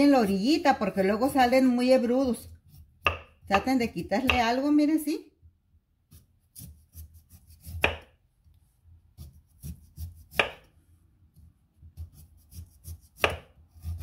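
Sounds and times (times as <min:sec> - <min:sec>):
knife scraping sweet potato skin: 0:02.4 - 0:03.4, 0:06.1 - 0:08.1, 0:09.1 - 0:10.7, 0:11.9 - 0:14.0.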